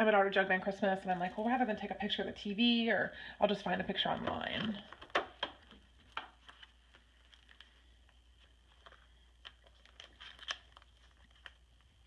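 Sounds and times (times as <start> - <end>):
plastic page protectors rustling: 3.8 - 12.0.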